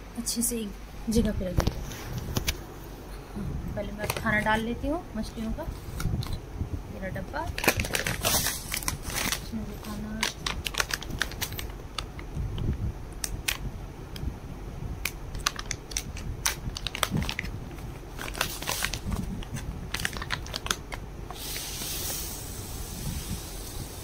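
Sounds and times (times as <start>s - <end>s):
plastic packet crinkling: 7.4s - 12.3s, 15.3s - 21.6s.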